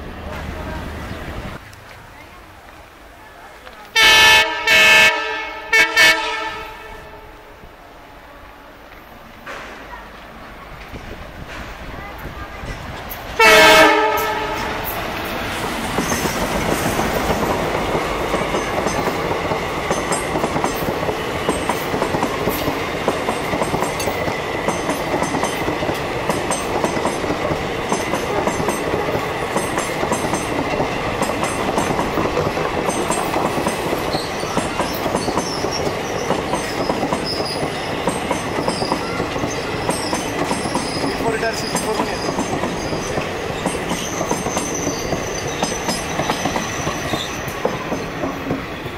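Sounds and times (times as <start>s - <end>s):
diesel locomotive passing: 0.0s - 48.9s
locomotive horn blast: 4.0s - 7.5s, 13.4s - 14.9s
wheels clacking over rail joints: 9.4s - 48.9s.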